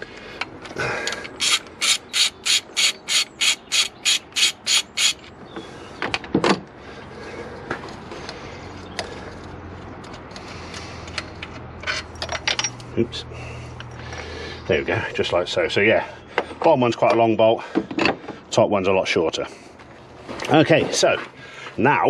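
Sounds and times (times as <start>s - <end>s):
ratchet wrench ratcheting: 1.3s - 5.3s.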